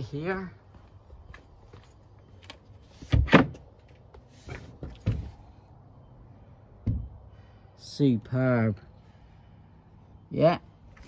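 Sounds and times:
knocks and thuds of plywood: 0:03.0 - 0:03.7, 0:04.5 - 0:05.5, 0:06.8 - 0:07.2.

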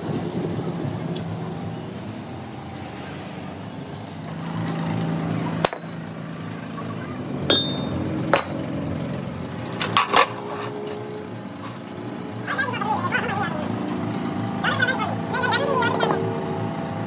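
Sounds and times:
light metal knocks and clinks: 0:05.6 - 0:06.1, 0:07.5 - 0:08.7, 0:15.2 - 0:16.6
metal axle clanking on concrete: 0:05.6 - 0:06.3, 0:07.4 - 0:09.0, 0:09.6 - 0:12.1, 0:13.7 - 0:16.6.

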